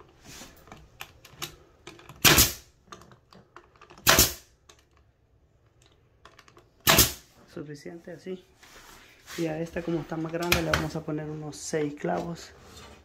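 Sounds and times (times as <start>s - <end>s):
brad nailer firing: 2.2s - 2.7s, 4.0s - 4.5s, 6.8s - 7.3s.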